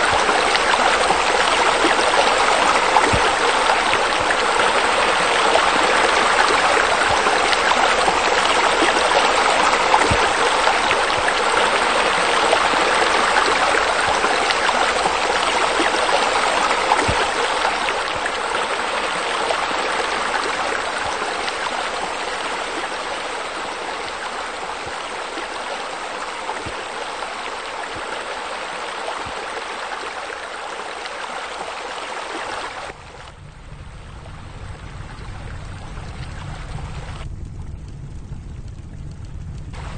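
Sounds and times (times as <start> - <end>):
water jets splashing into pool: 0.0 - 33.4, 38.9 - 39.9
low rumble: 32.9 - 39.9.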